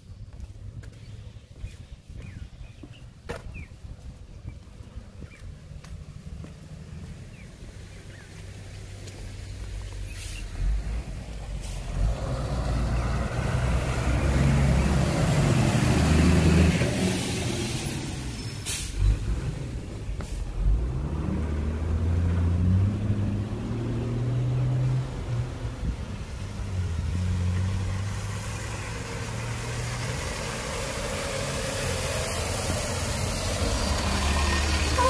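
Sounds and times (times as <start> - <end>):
vehicle engine: 4.7 - 35.0
bus driving past: 5.0 - 35.0
tyres hissing on wet road: 8.5 - 35.0.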